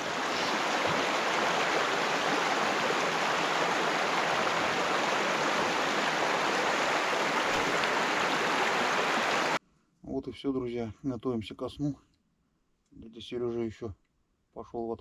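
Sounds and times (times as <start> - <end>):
river water rushing over gravel: 0.0 - 9.6.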